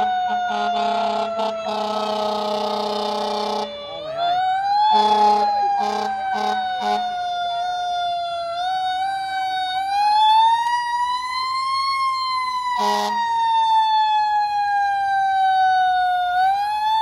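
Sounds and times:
air horn blast: 0.0 - 3.7, 4.9 - 7.1, 12.8 - 13.2
fire engine siren wailing: 0.0 - 17.0.

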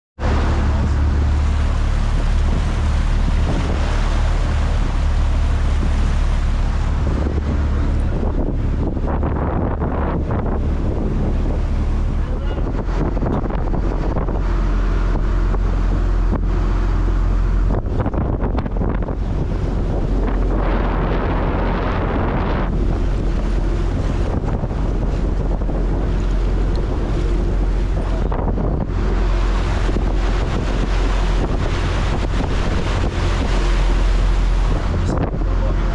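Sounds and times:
boat engine running: 0.2 - 35.9
wake rushing water: 0.2 - 35.9
wind buffeting microphone: 0.2 - 35.9.

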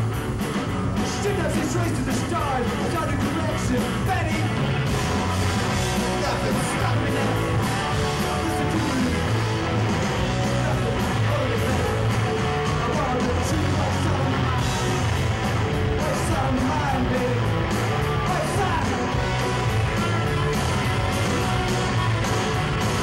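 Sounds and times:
punk rock band playing: 0.0 - 23.0
yelled vocals: 0.0 - 23.0.

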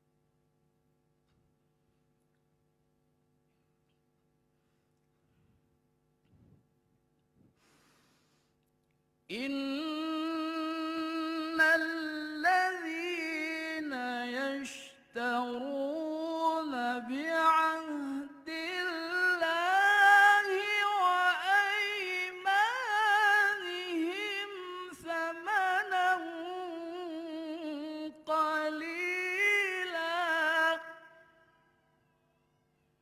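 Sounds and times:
man chanting melodically: 9.3 - 31.3.

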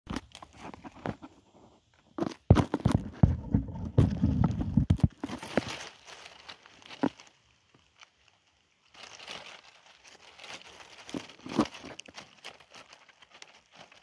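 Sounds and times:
dry leaves crunching and rustling: 2.2 - 14.0
clicks and low thumps: 2.5 - 5.2.

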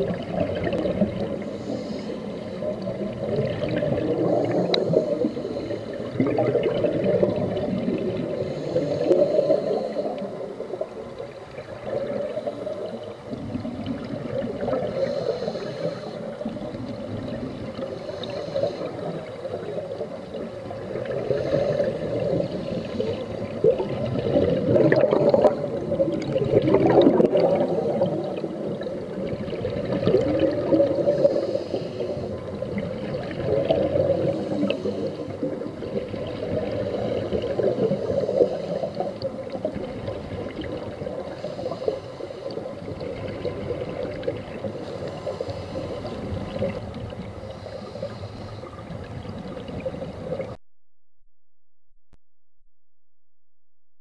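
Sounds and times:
bubbles gurgling: 0.0 - 2.0, 2.6 - 15.7, 16.3 - 41.4, 42.7 - 44.8
diver breathing through regulator: 1.3 - 3.0, 4.0 - 6.4, 8.2 - 10.6, 14.7 - 16.5, 17.8 - 19.9, 20.9 - 25.6, 30.4 - 32.7, 33.7 - 35.5, 36.5 - 39.3, 41.2 - 42.9, 44.7 - 46.8, 47.4 - 49.0.

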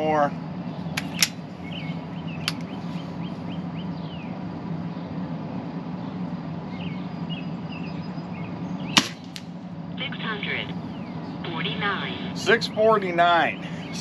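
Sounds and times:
birds chirping: 0.0 - 14.0
steady low hum: 0.0 - 14.0
air rifle shot: 9.0 - 9.4.

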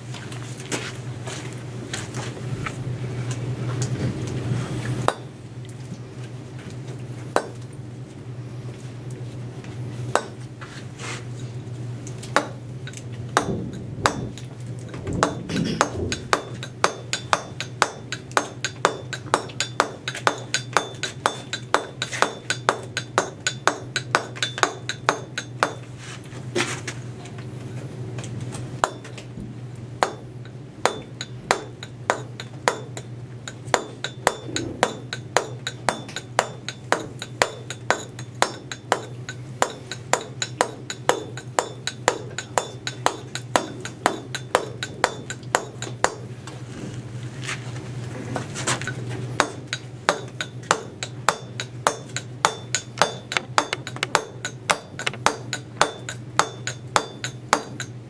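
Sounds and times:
steel chisel striking stone: 5.1 - 5.3, 7.4 - 7.6, 10.2 - 10.4, 12.4 - 25.9, 28.8 - 29.2, 30.0 - 46.2, 49.4 - 58.0.

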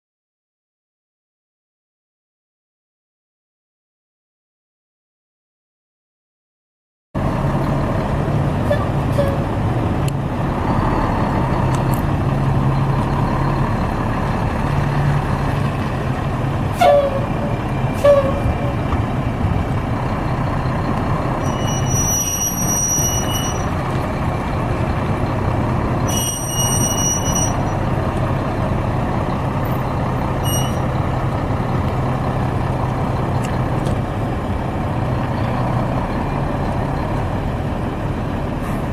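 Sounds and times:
truck diesel engine running: 7.2 - 38.9
high-pitched squeals: 21.4 - 23.9, 26.0 - 27.9, 30.4 - 31.0.

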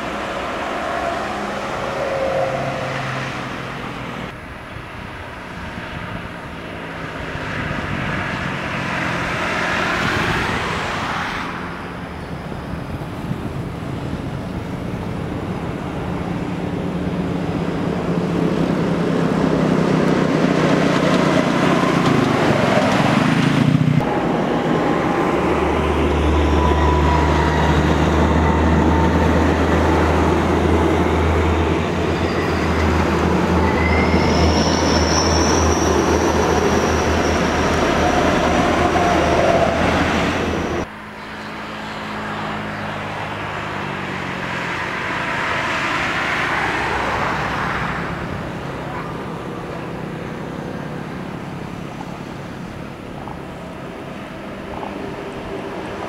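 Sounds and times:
diesel vehicles passing: 0.0 - 56.0.

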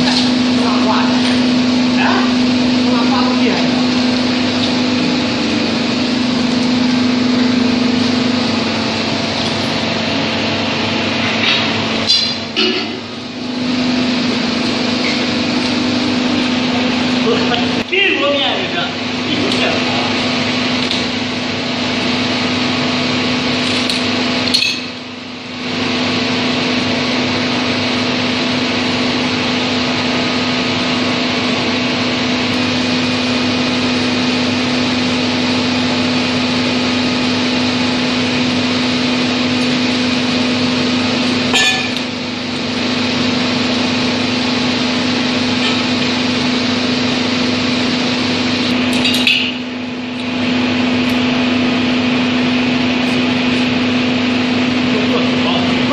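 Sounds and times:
machinery droning: 0.0 - 55.9
wrenches clanking on steel rods: 41.5 - 42.0.

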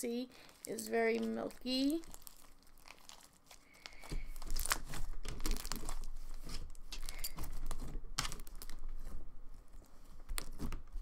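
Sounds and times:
slime crackling and popping: 0.4 - 8.8.

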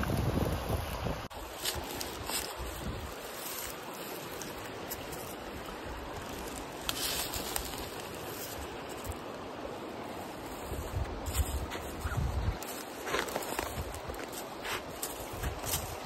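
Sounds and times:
short rustle: 10.1 - 16.0.

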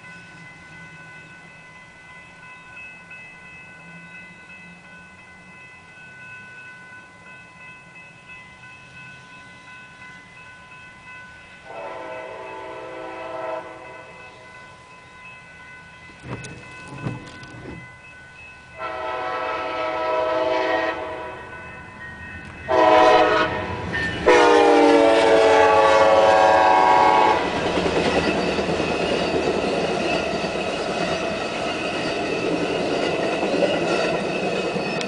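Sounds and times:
train rumble and wheel clatter: 0.0 - 35.0
train horn blasts: 11.6 - 14.2, 18.8 - 21.5, 22.7 - 27.6.

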